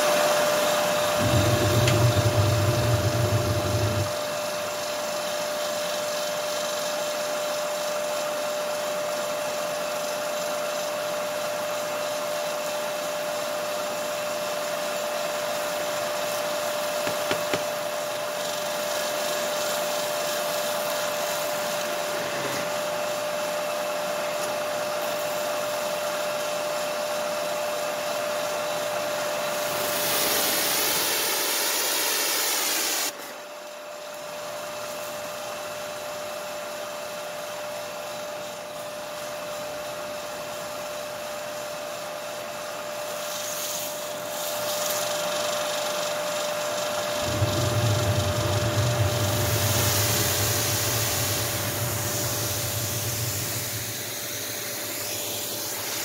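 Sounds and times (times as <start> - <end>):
pressure washer droning: 0.0 - 6.0, 43.2 - 56.0
bright hiss: 43.1 - 46.2, 46.8 - 56.0
water spraying from wand: 47.2 - 56.0.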